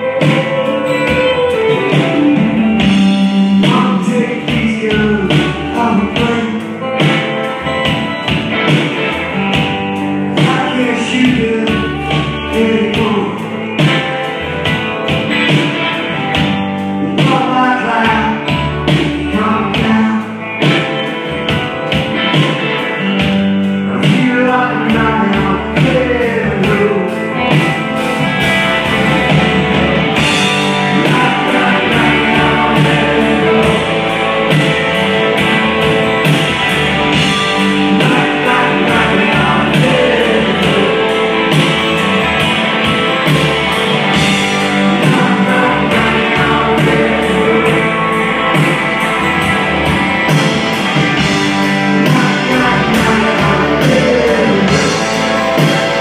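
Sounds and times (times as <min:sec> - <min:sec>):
man singing: 0:00.0 - 0:07.2, 0:10.3 - 0:14.2, 0:16.9 - 0:21.0, 0:23.8 - 0:27.8, 0:30.2 - 0:34.8, 0:37.1 - 0:42.0, 0:44.2 - 0:48.8, 0:51.0 - 0:56.0
acoustic guitar strumming: 0:27.1 - 0:56.0.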